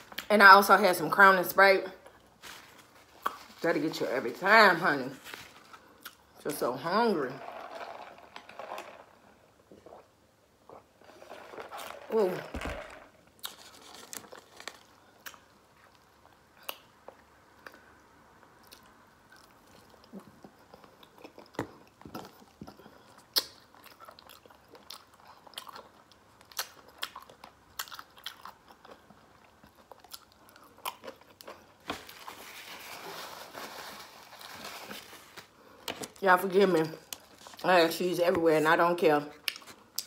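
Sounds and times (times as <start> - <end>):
paper wrapper rustling: 2.4 - 3.9, 5.0 - 6.0, 11.1 - 15.0, 31.8 - 36.2
wet chewing and smacking: 18.6 - 31.9.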